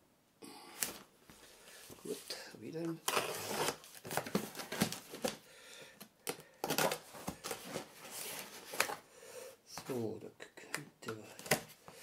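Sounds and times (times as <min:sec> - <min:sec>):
cardboard rustling: 0:01.7 - 0:05.4, 0:06.6 - 0:09.0
packing tape tearing: 0:03.0 - 0:05.4.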